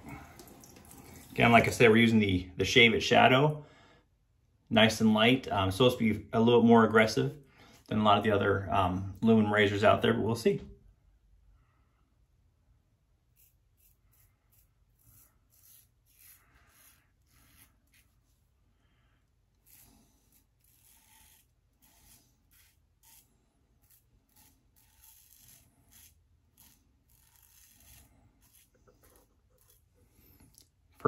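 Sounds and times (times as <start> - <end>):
razor scratching through stubble: 13.3 - 18.4, 19.6 - 30.5.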